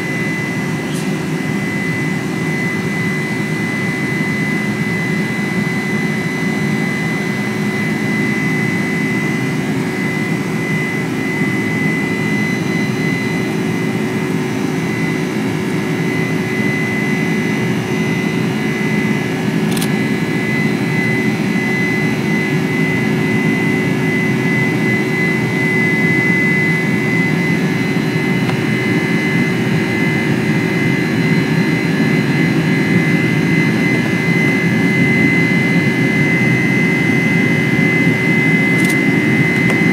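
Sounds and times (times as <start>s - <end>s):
jet engines rumble and fan whine: 0.0s - 39.9s.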